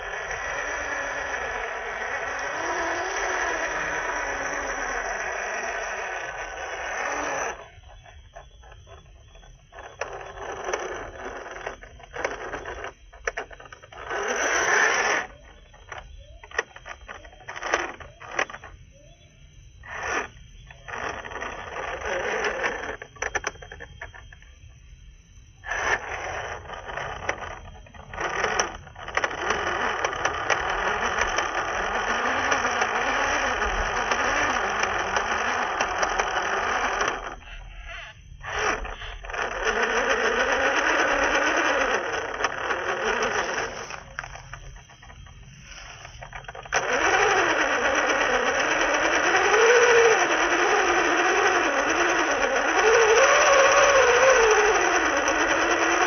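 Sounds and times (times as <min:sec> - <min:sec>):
electric motor whining: 0:00.0 - 0:56.0
tyres spinning in mud: 0:25.7 - 0:37.5, 0:38.5 - 0:56.0.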